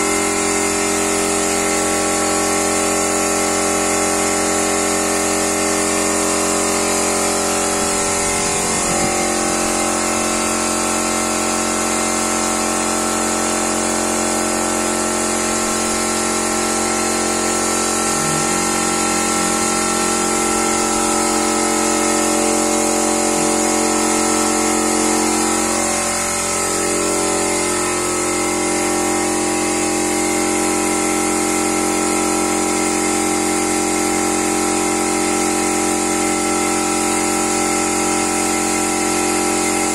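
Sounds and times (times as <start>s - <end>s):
air compressor running: 0.0s - 39.9s
spray gun hissing: 0.1s - 10.9s, 17.1s - 29.6s.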